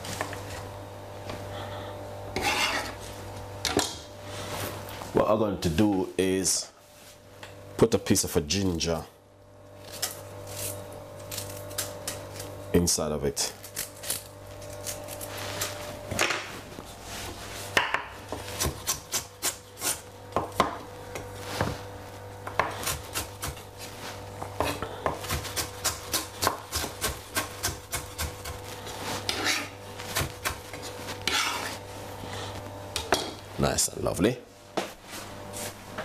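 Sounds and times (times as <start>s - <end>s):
steady low hum: 0.0s - 36.0s
knife chopping on wooden board: 17.7s - 21.7s, 22.4s - 23.6s, 24.4s - 28.6s.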